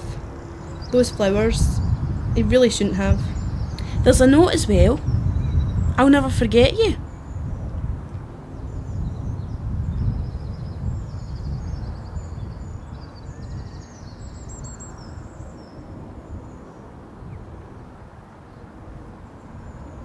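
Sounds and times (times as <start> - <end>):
steady low rumble: 0.0 - 13.2
small birds chirping: 0.0 - 17.5.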